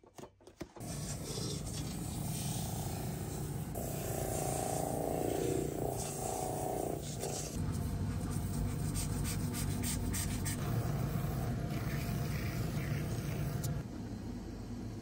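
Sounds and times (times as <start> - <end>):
motor hum: 0.8 - 8.8.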